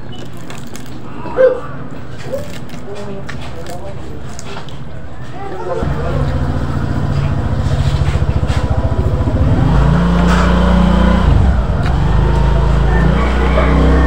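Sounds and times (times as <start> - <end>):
loud motor vehicle engine running: 5.8 - 14.0.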